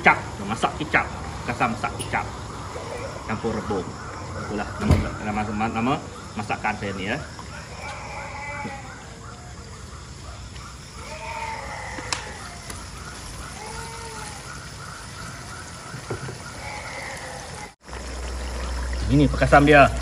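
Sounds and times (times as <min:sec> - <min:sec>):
liquid simmering hiss: 0:00.0 - 0:08.7, 0:11.0 - 0:20.0
steady pulsing chirping: 0:00.0 - 0:17.5
rising-and-falling animal calls: 0:02.5 - 0:17.8.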